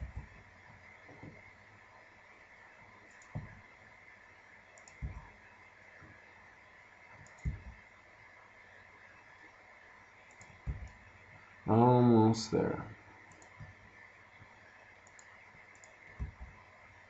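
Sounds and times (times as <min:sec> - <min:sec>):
faint steady hiss: 0:00.0 - 0:17.0
computer mouse and keyboard clicks: 0:03.1 - 0:03.6, 0:04.8 - 0:05.3, 0:07.2 - 0:07.8, 0:10.2 - 0:11.0, 0:13.3 - 0:13.9, 0:15.0 - 0:16.6.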